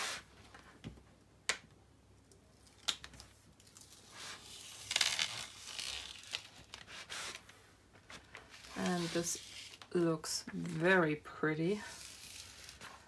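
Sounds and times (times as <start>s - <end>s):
paper peeling off adhesive: 2.7s - 7.4s, 11.9s - 13.0s
paper rustling: 3.2s - 10.8s.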